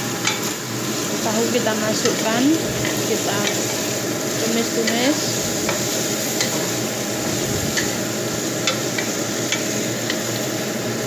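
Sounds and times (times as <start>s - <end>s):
food sizzling in a wok: 0.0s - 11.0s
spatula knocking and scraping pan: 1.9s - 8.0s.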